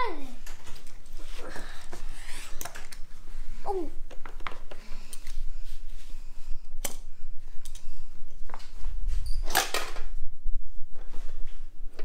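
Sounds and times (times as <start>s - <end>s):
plastic toys clicking and rattling: 0.4s - 3.1s.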